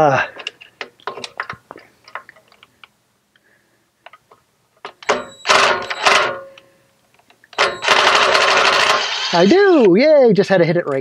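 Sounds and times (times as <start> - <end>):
cordless driver running: 7.6 - 9.9.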